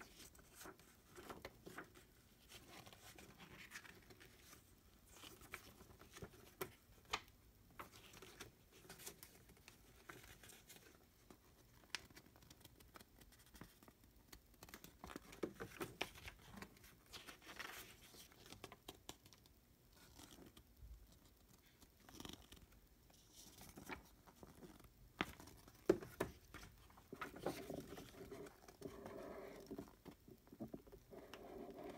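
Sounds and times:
paper rustling: 0.0s - 14.0s, 23.2s - 30.2s.

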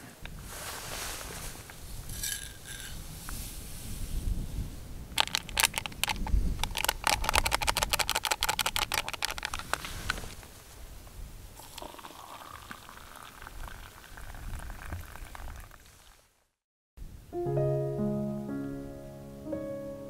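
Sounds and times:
coffee granules pattering into metal mug: 5.2s - 9.8s, 11.6s - 15.7s.

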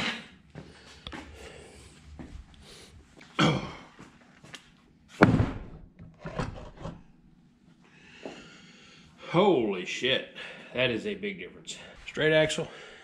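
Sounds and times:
heavy metal thud on workbench: 5.2s - 5.9s.

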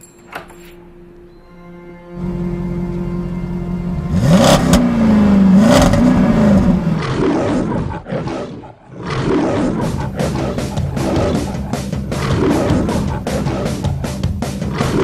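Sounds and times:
race car engine revving: 2.2s - 8.0s.

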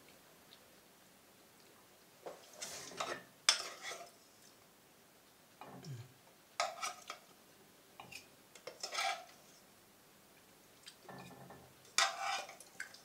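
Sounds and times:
fork scraping on pot and plate: 2.6s - 4.2s, 6.6s - 7.2s, 8.0s - 9.5s, 11.2s - 13.0s.

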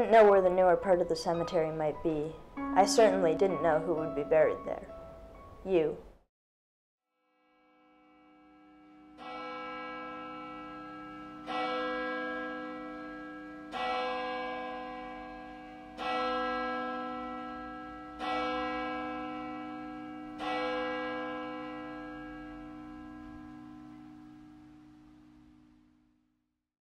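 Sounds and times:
bell tolling: 2.6s - 5.2s.

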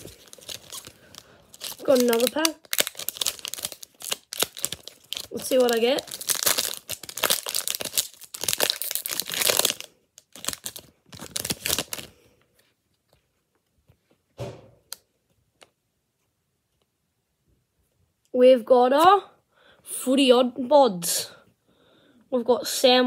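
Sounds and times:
cards rustling: 0.0s - 12.2s
foil wrapper tearing and crinkling: 0.0s - 12.2s.

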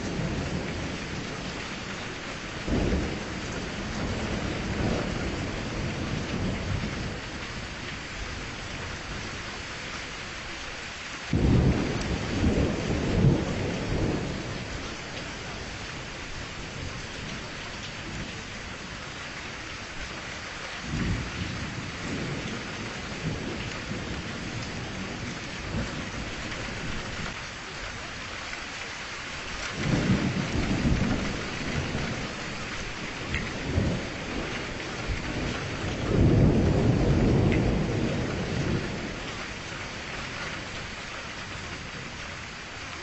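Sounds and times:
rolling thunder: 0.0s - 9.3s, 11.3s - 18.9s, 20.9s - 27.4s, 29.7s - 39.7s
steady rain: 0.0s - 43.0s.

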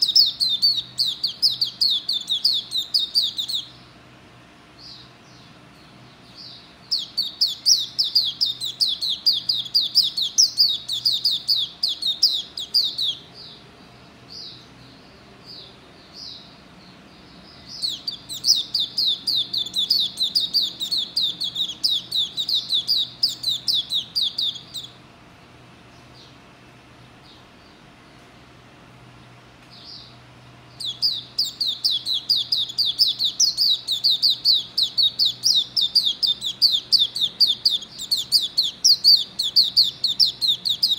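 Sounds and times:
bird singing rapid high notes: 0.0s - 3.8s, 6.4s - 13.6s, 17.5s - 25.0s, 30.7s - 40.9s.

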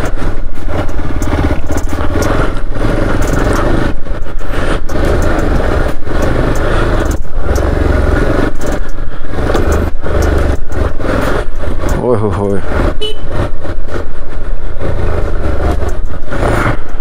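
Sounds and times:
motorcycle engine low rumble: 0.0s - 17.0s
road clatter: 0.0s - 17.0s.

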